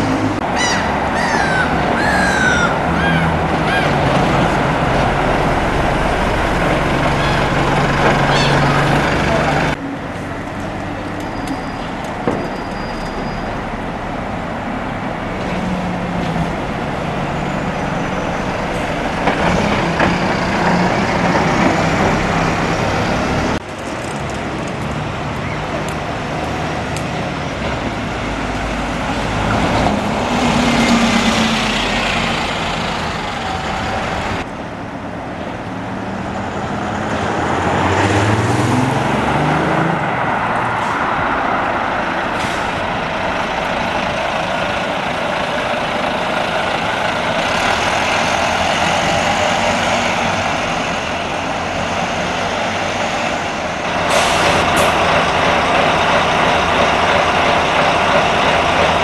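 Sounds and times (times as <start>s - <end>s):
diesel bus engines: 0.0s - 59.0s
air brakes hissing: 42.3s - 42.9s, 54.0s - 55.0s.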